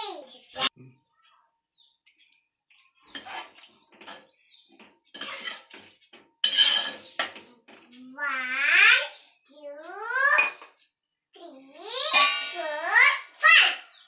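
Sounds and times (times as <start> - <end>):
metal spoon scraping a pot: 3.0 - 4.4, 5.1 - 5.8, 6.4 - 7.4.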